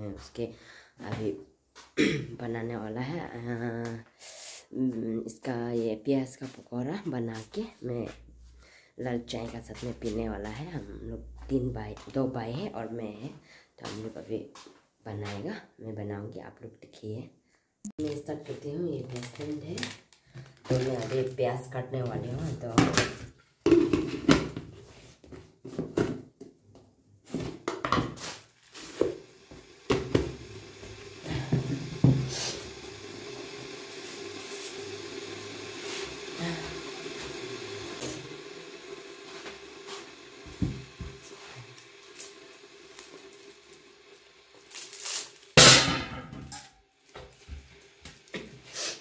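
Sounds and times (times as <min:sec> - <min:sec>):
kitchen things knocking: 0:22.8 - 0:24.6, 0:45.6 - 0:46.7.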